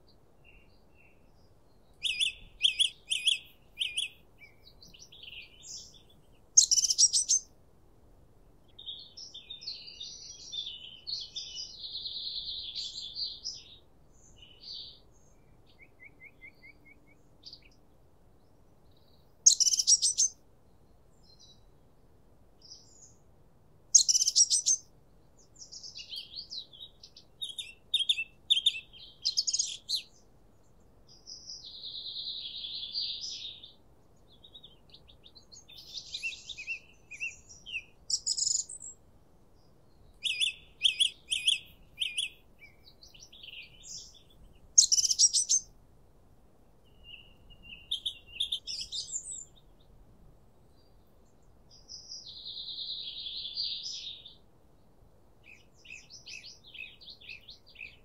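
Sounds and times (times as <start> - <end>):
songbirds chirping: 0.0 - 58.0
buzzy bird trill: 6.6 - 7.4, 19.5 - 20.3, 24.0 - 24.8, 44.8 - 45.6.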